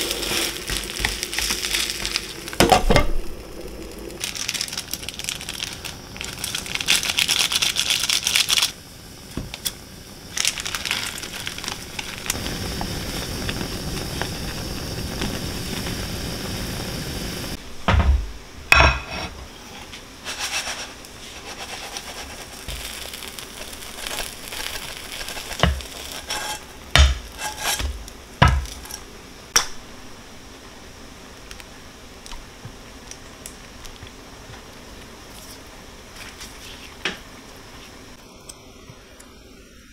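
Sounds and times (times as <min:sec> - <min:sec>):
food sizzling in a frying pan: 0:00.0 - 0:18.0, 0:18.7 - 0:29.7
kitchenware knocking and clattering: 0:17.9 - 0:19.1.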